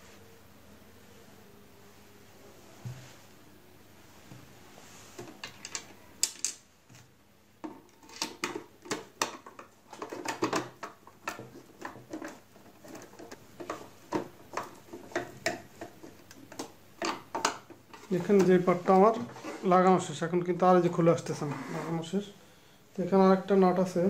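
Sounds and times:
plastic cover clicks and knocks: 7.6 - 18.5.

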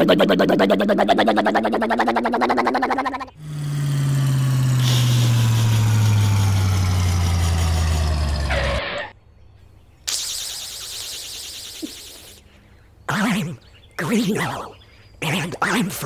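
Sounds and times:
truck engine with falling pitch: 3.3 - 9.1.

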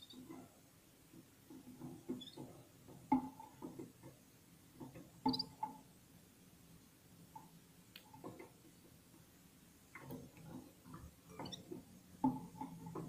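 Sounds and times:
faint high bird chirps: 0.0 - 0.3, 5.2 - 5.6
bird tapping in a cage: 1.1 - 4.2, 4.8 - 5.8, 7.4 - 8.7, 9.9 - 13.0.

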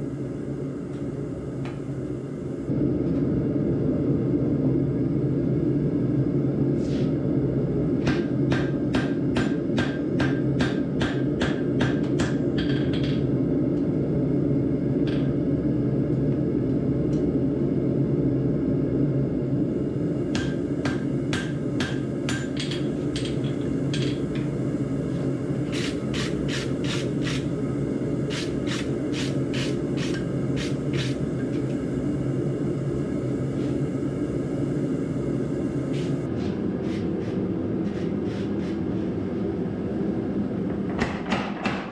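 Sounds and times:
hammer striking steel on anvil: 8.0 - 13.1, 20.3 - 24.2.

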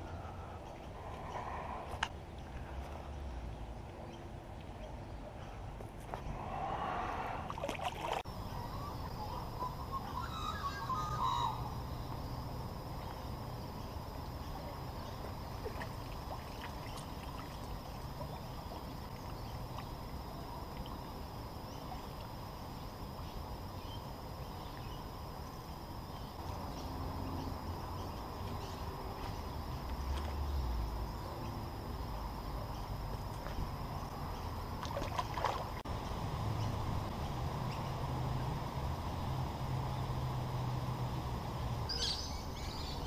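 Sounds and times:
faint high whine: 6.1 - 43.0
water trickling: 12.8 - 26.0.

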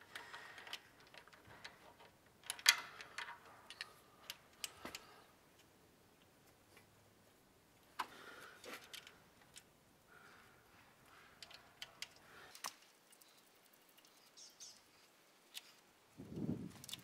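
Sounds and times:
faint metal clicks of bolts: 0.0 - 6.3.

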